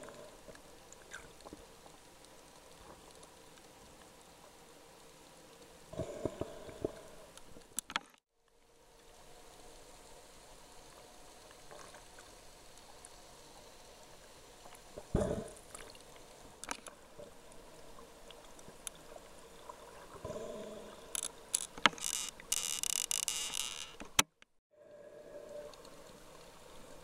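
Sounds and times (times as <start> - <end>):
faint underwater hiss: 0.0 - 7.8, 8.6 - 21.8, 24.8 - 27.0.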